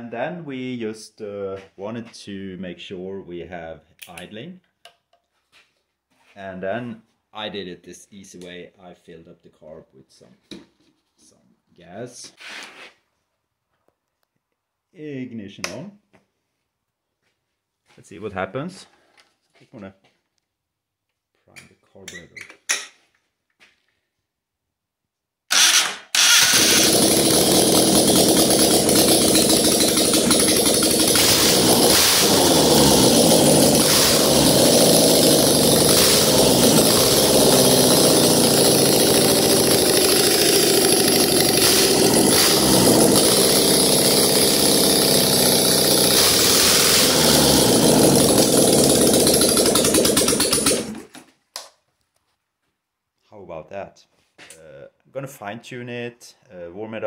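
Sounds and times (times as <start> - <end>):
car engine starting and running: 25.6 - 39.9.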